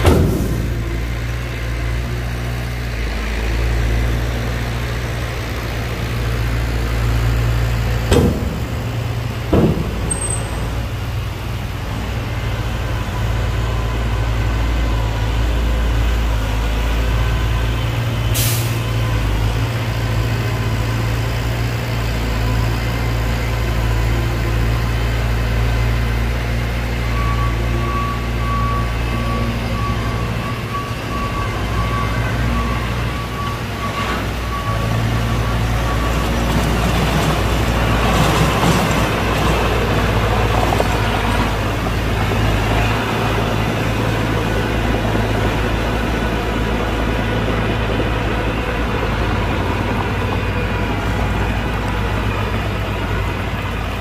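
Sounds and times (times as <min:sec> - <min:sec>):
sharp knocks: 0:00.0 - 0:01.1, 0:08.1 - 0:11.4
heavy diesel engines running: 0:00.0 - 0:54.0
air brake hiss: 0:18.3 - 0:18.9.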